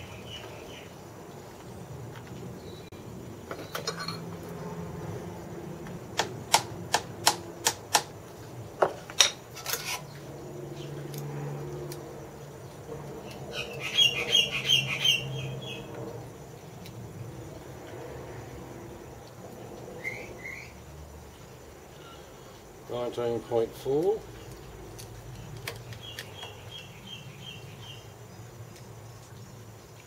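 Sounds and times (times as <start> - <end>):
hand tools tapping on metal: 8.8 - 10.0.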